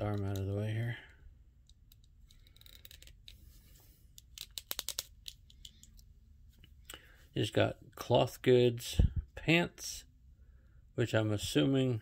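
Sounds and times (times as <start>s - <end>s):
plastic figure handling: 0.0s - 0.8s, 1.5s - 6.9s
sharp plastic clicks: 4.2s - 6.0s.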